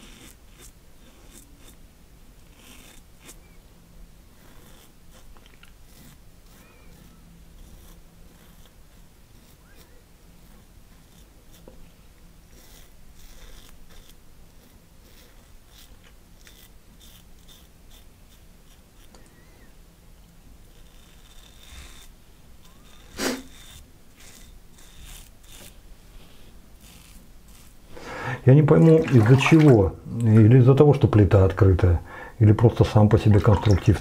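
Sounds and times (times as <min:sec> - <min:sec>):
razor scraping stubble: 0:00.0 - 0:01.8, 0:02.4 - 0:03.6, 0:04.3 - 0:19.7, 0:20.6 - 0:29.3, 0:32.8 - 0:34.0.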